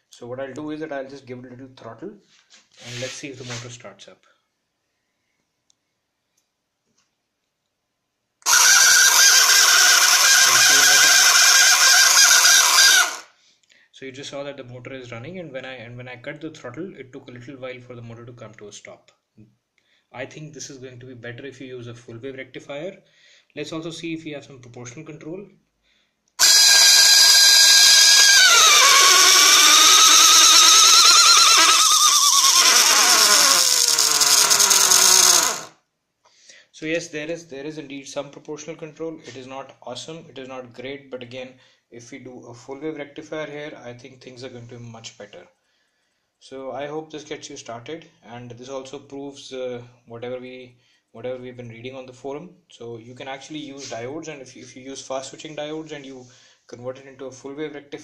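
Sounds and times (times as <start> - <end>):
small electric motor whirring: 8.5 - 13.3, 26.4 - 35.8.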